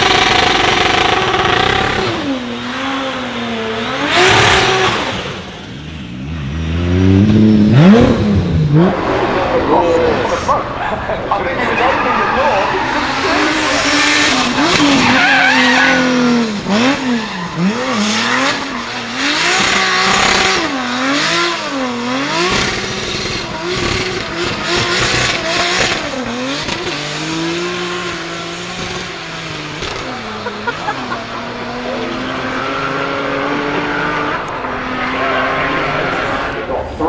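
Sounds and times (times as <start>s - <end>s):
car engine revving: 0.0s - 37.0s
tyres screeching: 11.3s - 20.8s.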